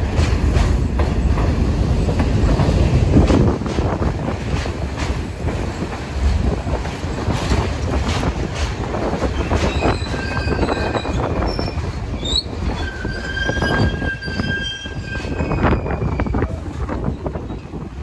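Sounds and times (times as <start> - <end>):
low train rumble: 0.0 - 18.0
wheels squealing on rails: 9.0 - 18.0.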